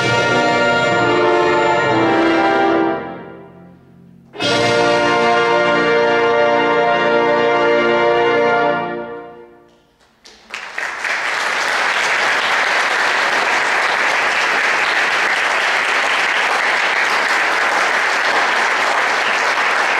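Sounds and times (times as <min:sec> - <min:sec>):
audience applause: 0:10.0 - 0:19.9.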